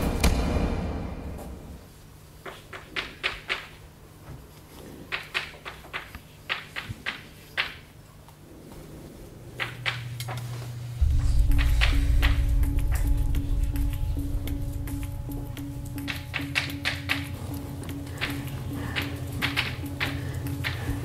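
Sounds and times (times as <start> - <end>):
low steady hum: 8.4 - 21.0
music with deep bass: 11.0 - 21.0.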